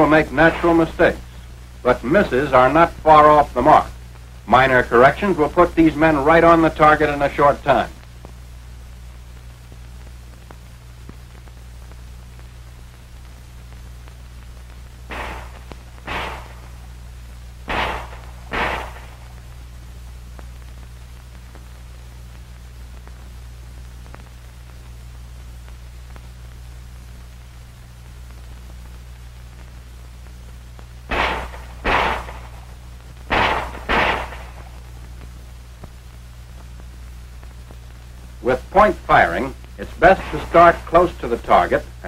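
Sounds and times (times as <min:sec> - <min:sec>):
background hiss and hum: 0:00.0 - 0:42.0
pistol shots: 0:15.1 - 0:16.9, 0:17.7 - 0:19.4, 0:31.1 - 0:34.8.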